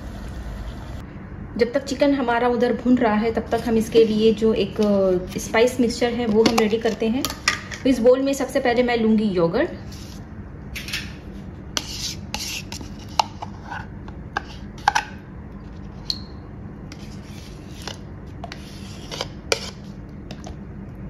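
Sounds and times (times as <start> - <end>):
low steady hum: 0.0 - 21.0
spoon scraping yogurt: 11.8 - 15.0, 16.9 - 20.6.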